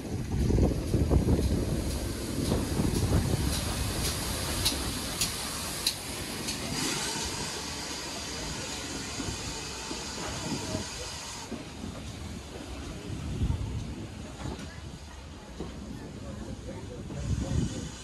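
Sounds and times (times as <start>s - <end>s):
steam hissing from locomotive: 0.0s - 18.0s.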